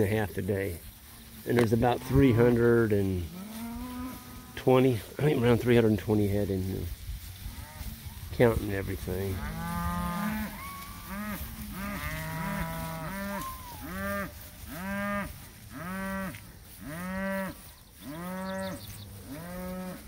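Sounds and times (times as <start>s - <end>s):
cattle mooing: 9.3s - 20.0s.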